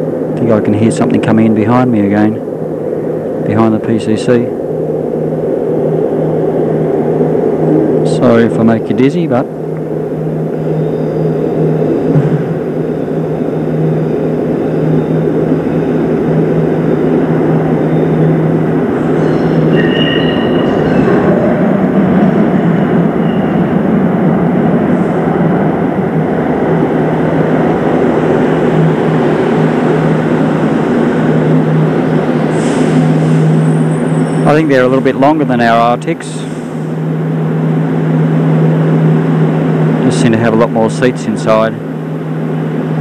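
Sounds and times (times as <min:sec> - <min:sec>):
train wheels rumbling: 0:00.0 - 0:43.0
high wheel squeals: 0:10.3 - 0:23.9, 0:30.9 - 0:37.0.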